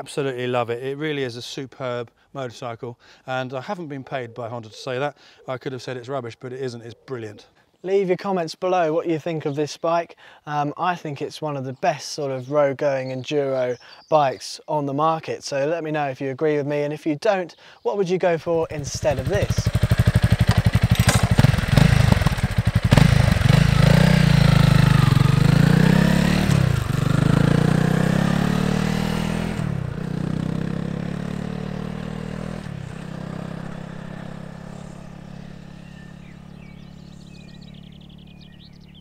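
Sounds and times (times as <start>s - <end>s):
birds chirping: 2.4s - 39.0s
motorcycle engine accelerating: 18.6s - 39.0s.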